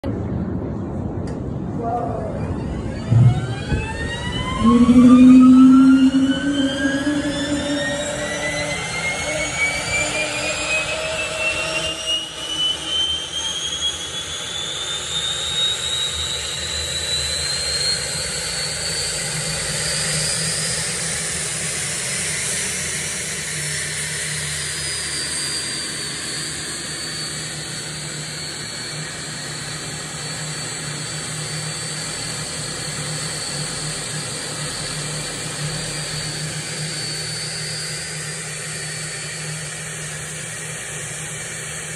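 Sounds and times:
turbine engine whine: 0.0 - 41.9
rush of air and exhaust: 2.6 - 9.5.

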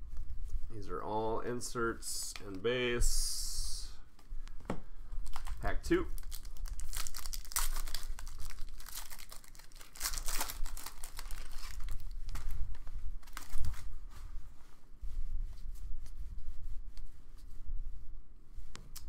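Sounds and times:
foil wrapper tearing and crinkling: 5.2 - 12.6, 13.2 - 13.9.

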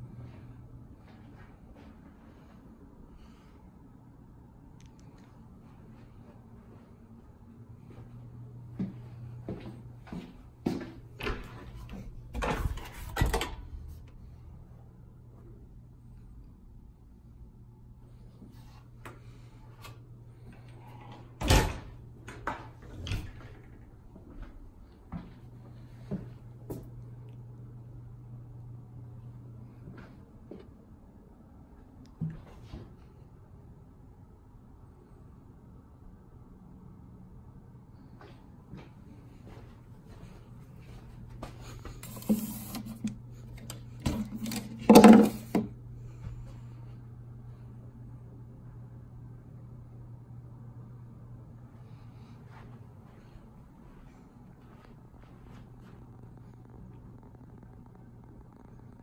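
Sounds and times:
low hum: 0.0 - 59.0
door shutting with a thud: 21.4 - 23.6.

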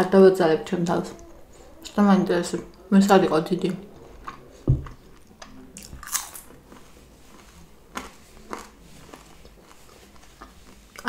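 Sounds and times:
french fry being bitten and chewed: 3.7 - 11.0.

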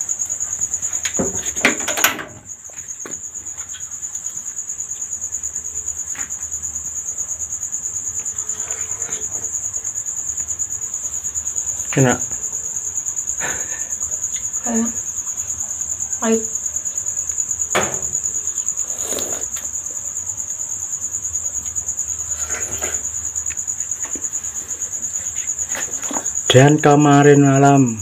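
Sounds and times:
crickets chirping: 0.0 - 28.0.

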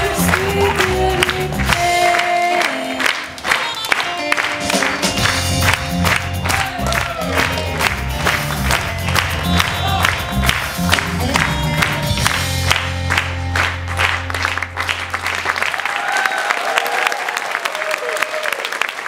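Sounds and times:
bass line: 0.0 - 2.2, 4.6 - 15.6
upbeat music: 0.0 - 15.4
hands clapping: 0.0 - 19.0.

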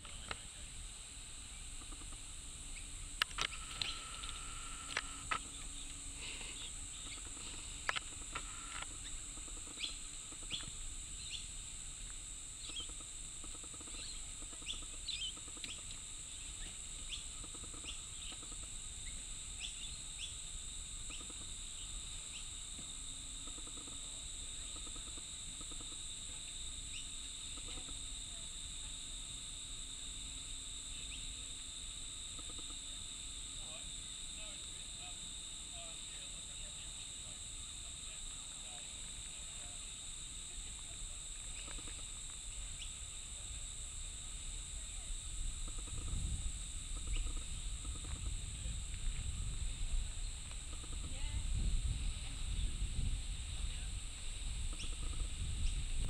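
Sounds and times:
insect drone: 0.0 - 56.0
bird chirps: 2.7 - 4.6, 6.5 - 8.1, 9.0 - 11.5, 12.6 - 13.0, 13.8 - 15.8.

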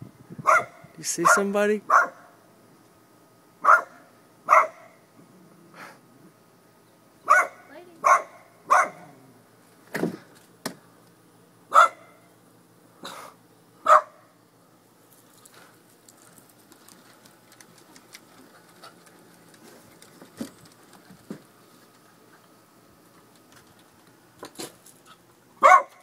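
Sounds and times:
dog barking: 0.4 - 2.3, 3.6 - 5.0, 7.3 - 9.2, 11.7 - 12.2, 13.8 - 14.3, 25.6 - 26.0.

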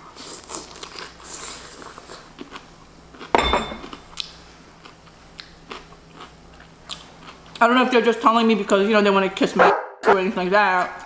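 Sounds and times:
ceramic dish clinking on table: 3.4 - 4.0.

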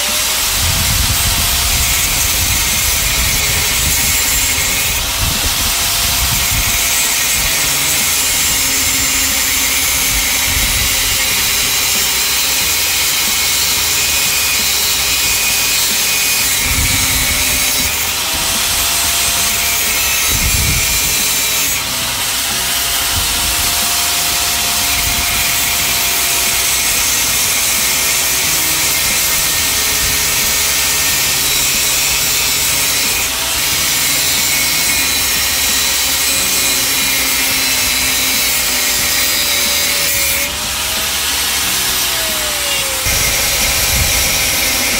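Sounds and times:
angle grinder grinding metal: 0.0 - 44.9.

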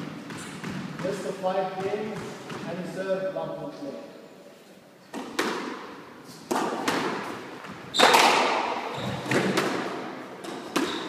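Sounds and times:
squash ball hits: 0.0 - 3.0, 5.1 - 11.0.

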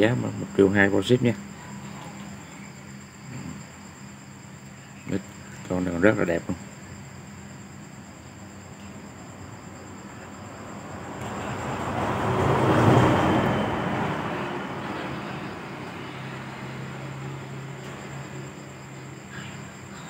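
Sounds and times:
steady low hum: 0.0 - 20.0
road vehicle passing by: 9.0 - 20.0.

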